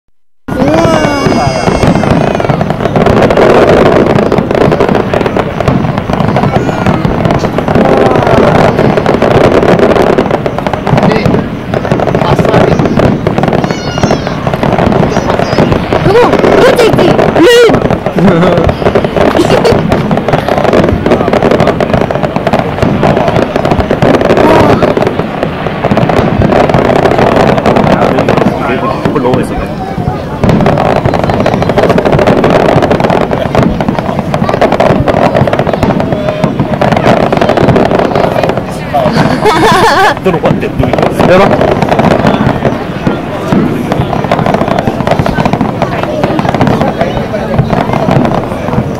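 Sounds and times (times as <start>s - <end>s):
fireworks bursting and crackling: 0.5s - 48.9s
rumbling wash: 0.5s - 48.9s.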